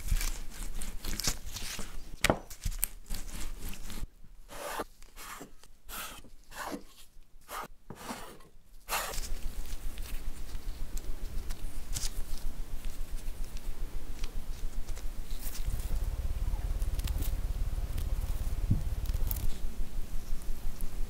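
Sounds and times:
low hum and hiss: 0.0s - 21.0s
scraper chopping dough on board: 3.1s - 9.3s.

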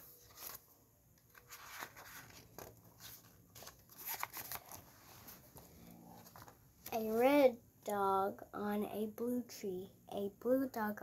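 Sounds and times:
book pages turning: 0.0s - 7.2s
paper crackles and clicks: 0.2s - 4.9s.

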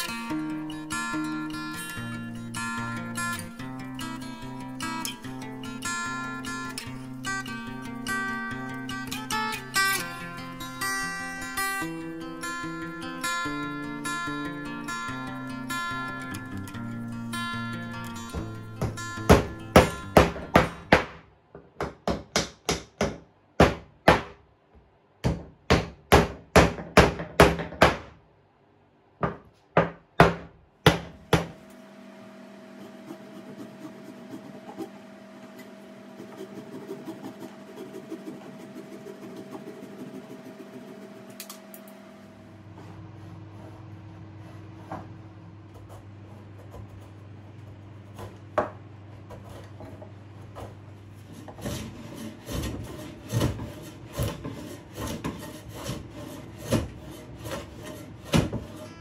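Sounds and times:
steady hum: 30.8s - 54.8s.

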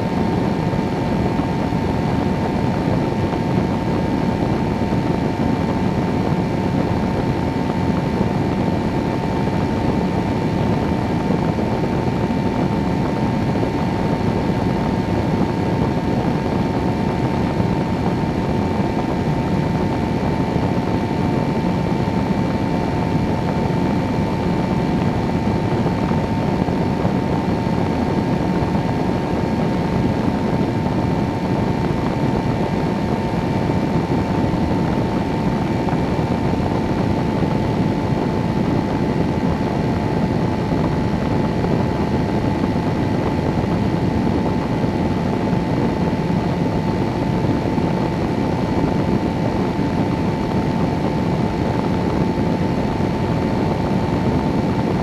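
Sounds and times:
aircraft engine droning: 0.0s - 55.0s
rushing wind: 0.0s - 55.0s.

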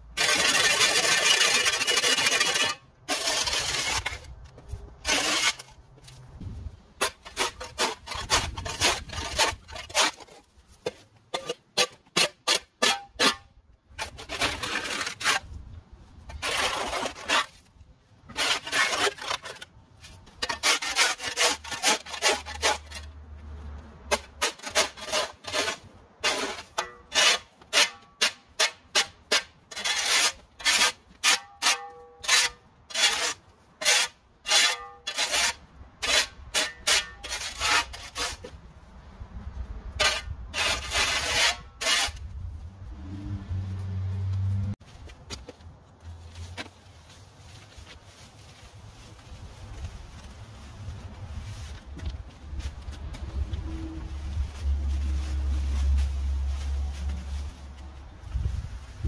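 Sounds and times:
hand tool scraping hard surface: 0.1s - 6.2s, 7.0s - 15.6s, 16.3s - 17.7s, 18.3s - 23.2s, 24.1s - 38.6s, 39.9s - 42.3s.

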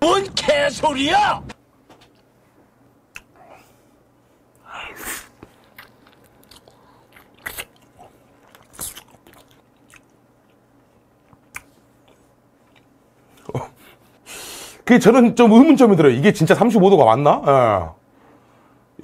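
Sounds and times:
mouth clicks: 3.1s - 3.4s
wet chewing and smacking: 5.4s - 13.4s.

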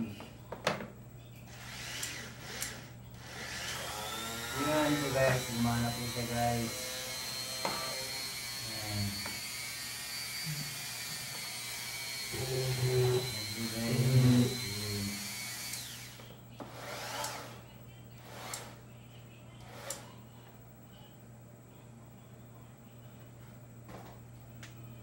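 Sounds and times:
rotary tool whining: 1.5s - 18.8s, 19.5s - 20.2s.

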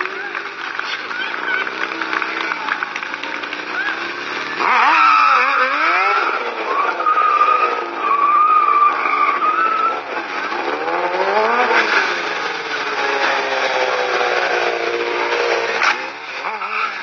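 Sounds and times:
motorcycle engine revving: 0.0s - 17.0s
tyre squealing: 3.5s - 14.8s.

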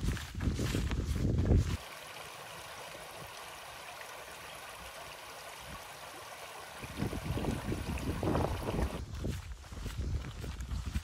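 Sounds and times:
stream babbling over stones: 1.8s - 9.0s.

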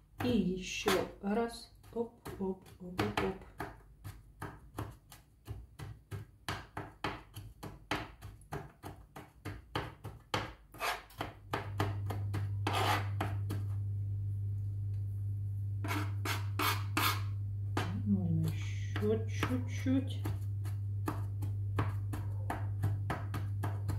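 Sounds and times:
knife chopping on plastic board: 0.0s - 1.2s, 1.8s - 13.7s, 15.8s - 23.9s
blade scraping across board: 10.8s - 11.1s, 12.6s - 13.2s, 15.8s - 17.3s
steady low hum: 11.5s - 23.9s.

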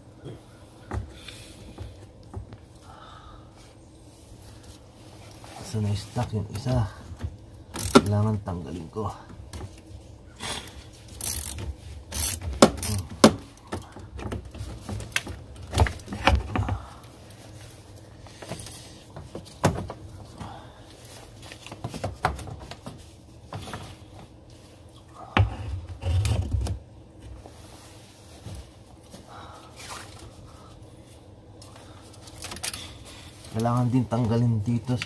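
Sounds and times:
ratchet clicking on fastener: 7.8s - 8.0s, 11.2s - 13.0s.

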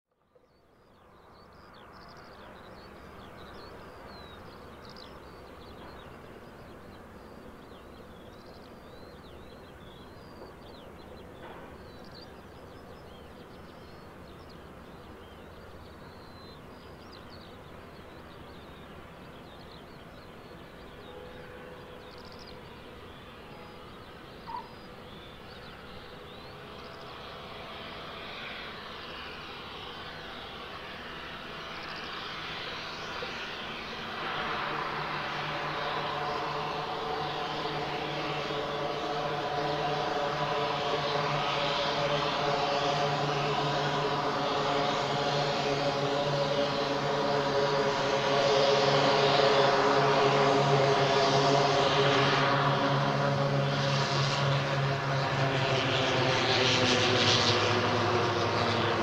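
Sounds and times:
turboprop aircraft engines running: 0.1s - 59.0s
birds chirping: 0.3s - 39.7s.

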